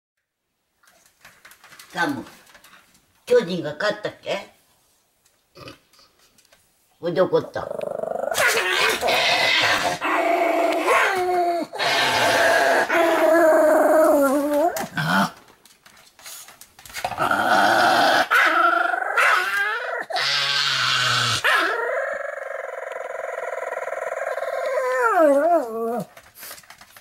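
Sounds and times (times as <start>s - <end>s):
dog growling and howling: 7.6s - 15.4s, 17.1s - 26.2s.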